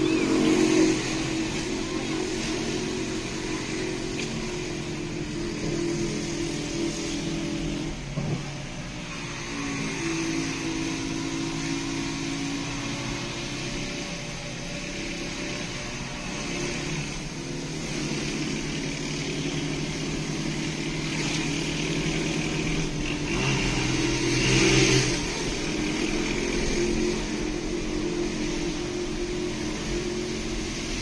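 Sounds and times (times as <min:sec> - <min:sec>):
motorcycle engine running: 0:00.0 - 0:31.0
road noise: 0:00.0 - 0:31.0.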